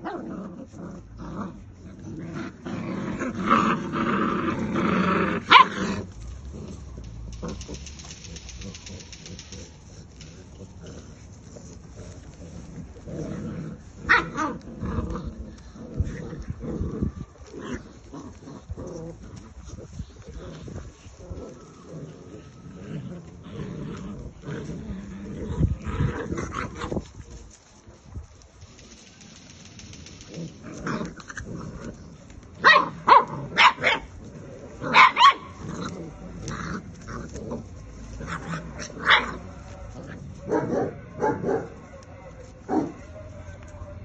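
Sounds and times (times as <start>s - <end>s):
puppies growling: 0.0s - 43.1s
puppies yapping: 2.4s - 27.7s, 28.6s - 43.4s
puppy barks: 5.4s - 6.1s, 14.0s - 14.6s, 32.6s - 34.1s, 34.8s - 36.2s, 37.3s - 44.0s.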